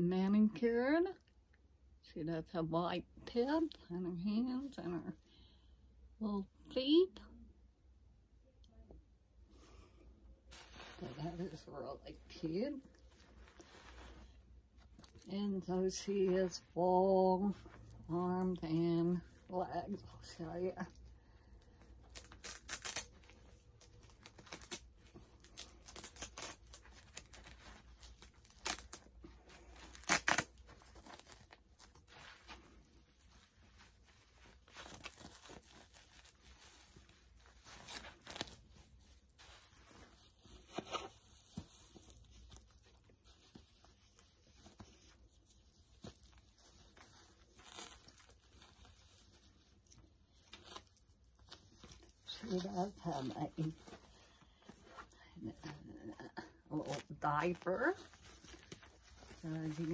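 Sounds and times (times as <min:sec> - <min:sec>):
cloth and plastic rustling: 0:09.4 - 0:59.9
velcro ripping open: 0:21.6 - 0:59.9.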